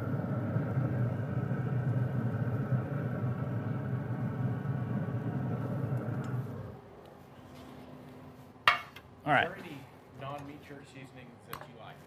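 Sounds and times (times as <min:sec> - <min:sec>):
machine hum and rumble: 0:00.0 - 0:08.4.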